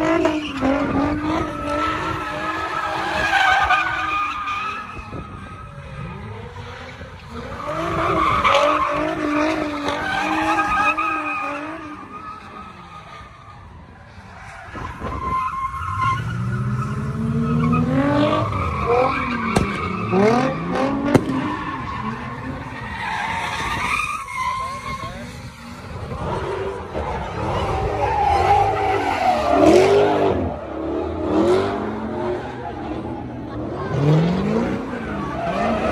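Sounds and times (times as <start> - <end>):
car engine revving: 16.2 - 23.4, 24.6 - 35.9.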